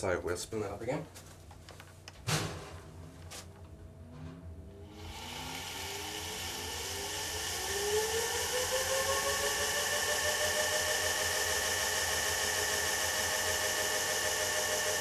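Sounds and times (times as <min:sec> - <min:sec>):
electric motor whine: 0:04.8 - 0:15.0.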